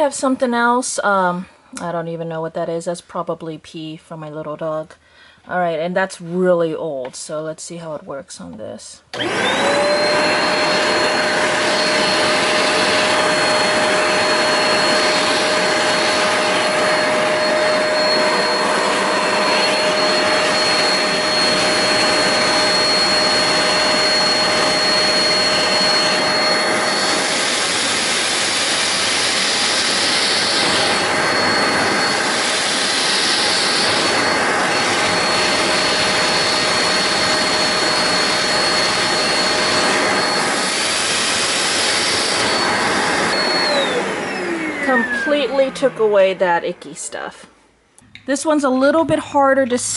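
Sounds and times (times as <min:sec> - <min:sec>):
spot cleaner motor whine: 0:09.1 - 0:46.9.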